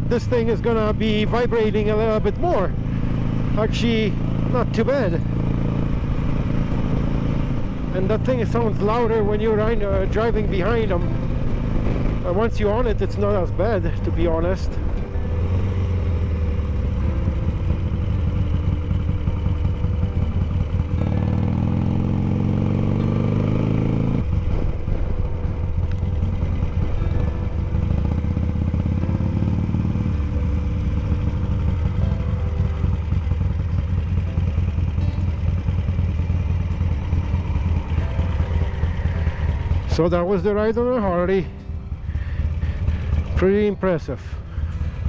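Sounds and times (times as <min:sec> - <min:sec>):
motorcycle engine at speed: 0:00.0 - 0:45.0.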